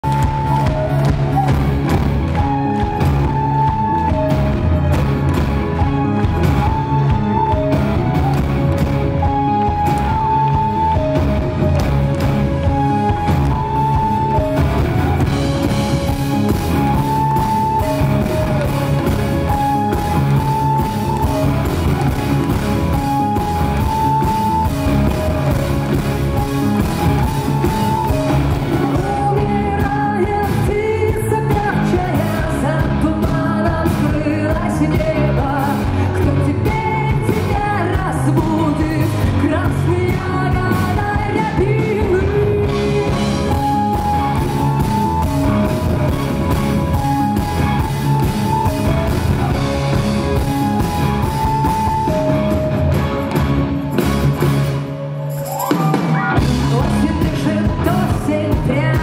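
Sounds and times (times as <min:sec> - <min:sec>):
live rock band playing: 0:00.0 - 0:59.0
person singing: 0:27.3 - 0:45.0, 0:55.6 - 0:59.0.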